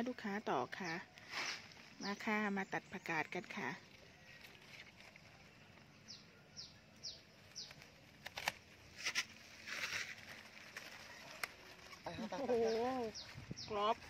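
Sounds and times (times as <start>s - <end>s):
leaves rustling: 0.2s - 14.0s.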